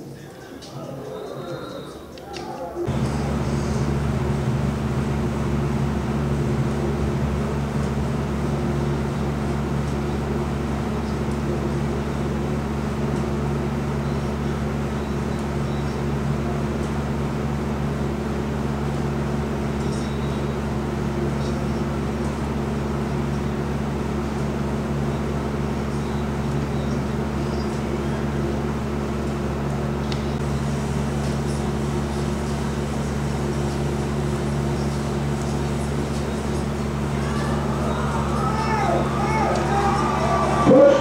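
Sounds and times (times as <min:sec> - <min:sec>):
low mechanical hum: 0:01.9 - 0:41.0.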